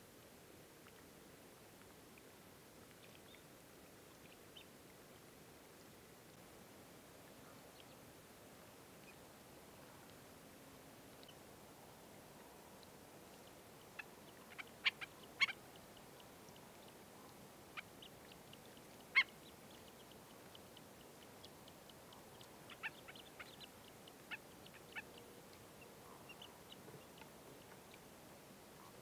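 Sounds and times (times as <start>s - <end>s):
faint soft ticking: 0.1s - 29.0s
birds giving sharp calls: 14.0s - 15.6s, 19.0s - 19.5s, 22.7s - 23.6s.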